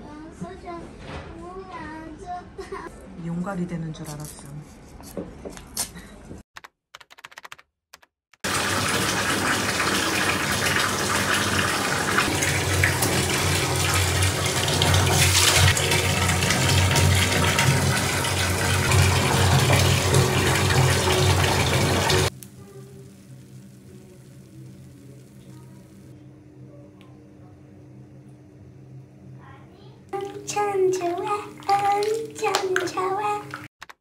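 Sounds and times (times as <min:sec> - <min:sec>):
running water rushing: 0:08.4 - 0:22.3, 0:30.2 - 0:33.7.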